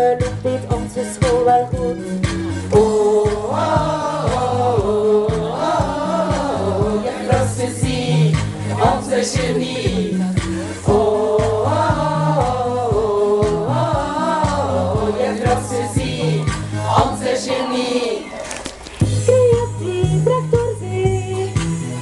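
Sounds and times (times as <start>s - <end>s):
backing track with beat and bass: 0.0s - 22.0s
women singing together: 2.7s - 18.4s.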